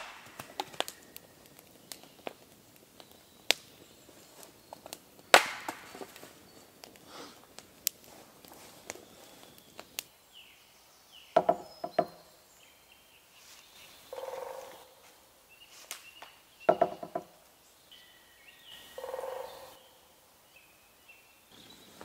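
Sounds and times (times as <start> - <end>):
small birds calling: 0.0 - 22.0
sharp knocks: 11.4 - 12.2, 16.7 - 17.3.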